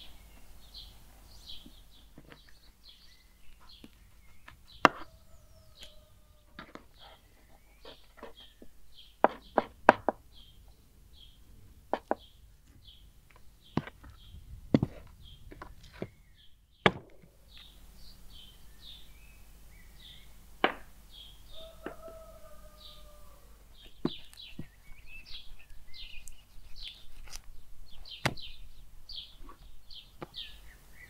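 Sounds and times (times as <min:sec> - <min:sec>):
small birds chirping: 0:00.0 - 0:31.0.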